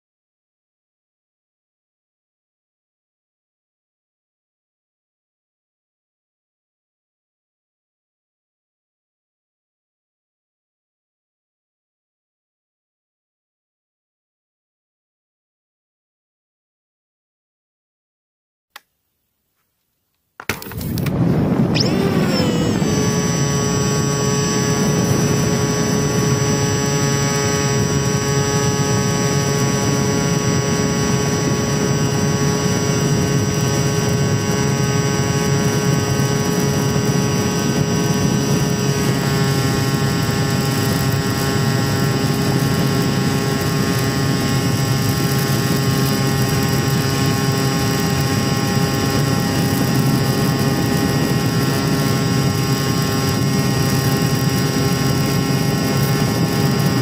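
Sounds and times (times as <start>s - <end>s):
electric motor whine: 20.5s - 57.0s.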